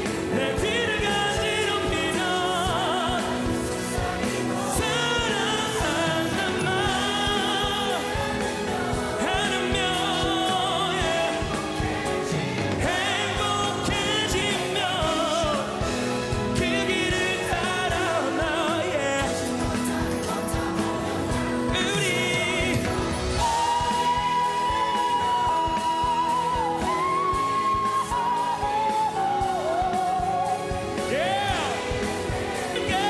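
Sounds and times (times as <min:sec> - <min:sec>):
backing choir: 0:00.0 - 0:33.0
drums: 0:00.0 - 0:33.0
lead vocal with vibrato: 0:00.0 - 0:33.0
piano: 0:00.0 - 0:33.0.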